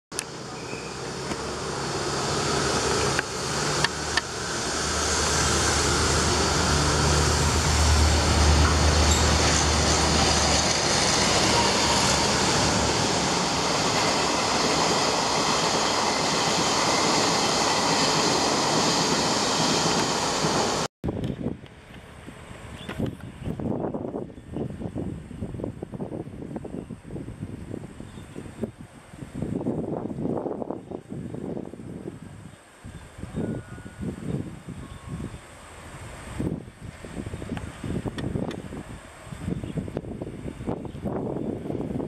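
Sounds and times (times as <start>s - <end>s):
locomotive engine drone: 0.1s - 20.9s
train wheels rushing on rails: 0.1s - 20.9s.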